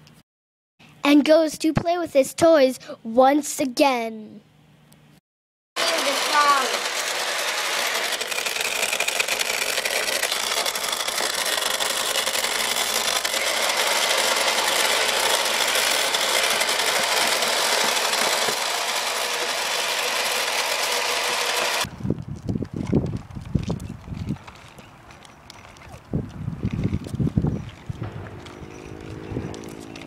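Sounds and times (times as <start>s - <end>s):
toy motor whirring: 5.8s - 21.9s
wind rumble on microphone: 21.9s - 25.0s, 25.7s - 30.0s.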